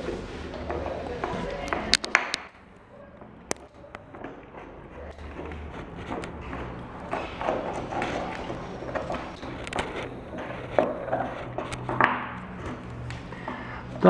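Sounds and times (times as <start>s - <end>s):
dog licking and gnawing bone: 3.6s - 13.2s.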